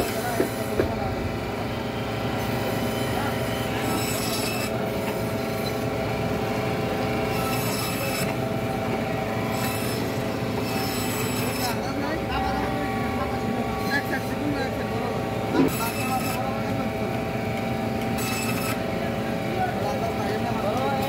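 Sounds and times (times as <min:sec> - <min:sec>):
steady hum: 0:04.7 - 0:18.0.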